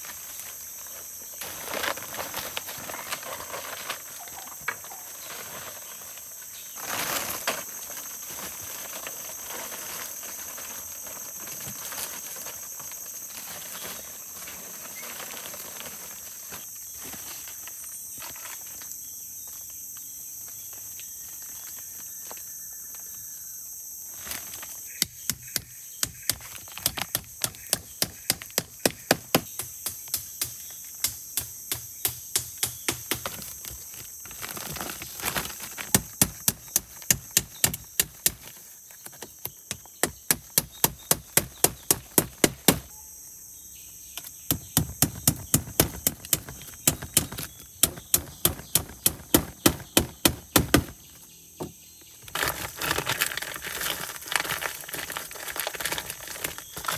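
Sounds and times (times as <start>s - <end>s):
forest insects droning: 0.0s - 56.9s
chopping wood: 25.0s - 33.5s, 35.8s - 38.5s, 39.4s - 42.9s, 44.5s - 51.0s.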